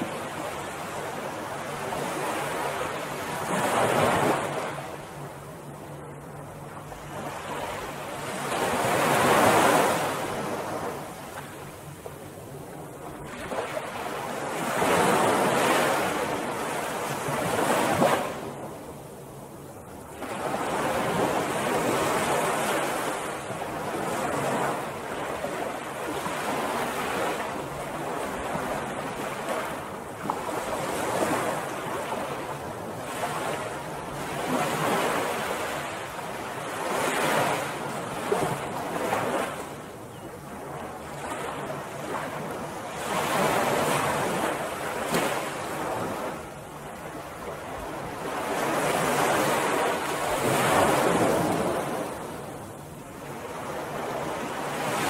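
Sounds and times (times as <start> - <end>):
ocean surf breaking on beach: 0.0 - 5.2, 6.8 - 12.2, 13.0 - 18.8, 40.9 - 55.0.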